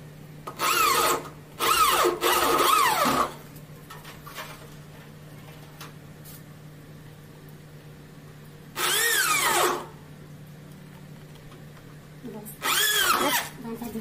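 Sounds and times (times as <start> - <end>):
electric hand drill: 0.5 - 3.4, 8.8 - 9.9, 12.6 - 13.5.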